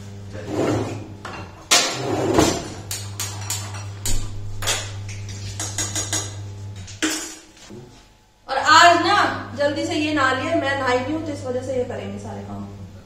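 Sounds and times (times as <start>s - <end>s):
steady low hum: 0.0s - 13.0s
pots and utensils clinking: 1.2s - 7.4s.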